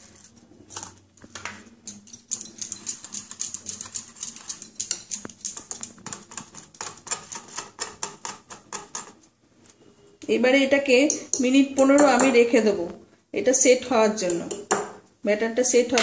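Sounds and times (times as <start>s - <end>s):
whisk clicking against glass bowl: 1.9s - 9.2s.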